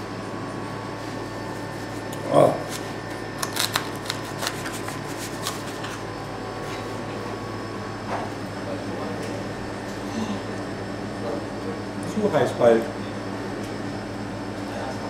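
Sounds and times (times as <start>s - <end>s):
room hum: 0.0s - 15.0s
knife and fork cutting pizza: 1.9s - 6.1s.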